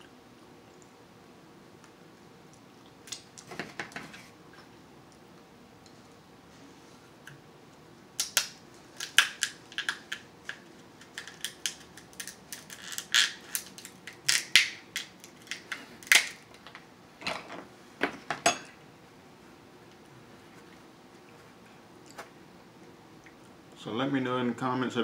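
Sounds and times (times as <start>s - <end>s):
scissors cracking crab shell: 8.2s - 16.5s.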